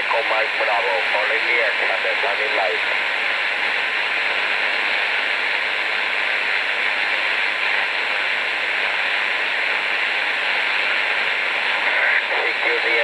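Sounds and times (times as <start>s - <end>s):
radio static hiss: 0.0s - 13.0s.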